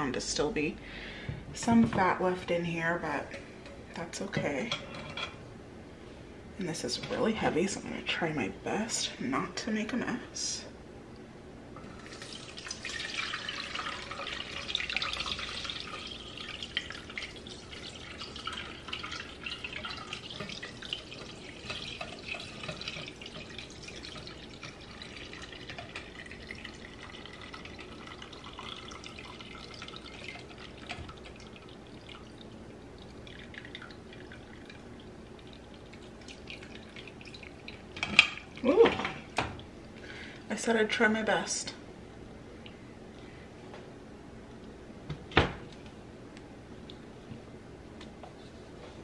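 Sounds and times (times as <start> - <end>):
broth pouring through strainer: 12.0 - 38.7.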